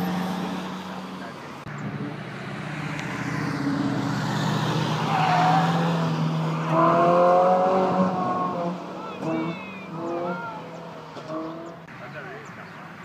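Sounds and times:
sports car engines passing: 0.0s - 13.0s
engine revving up loud: 2.0s - 11.8s.

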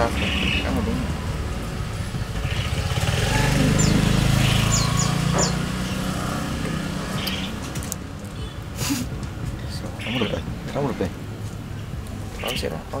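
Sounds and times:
small petrol engine passing: 0.0s - 8.3s.

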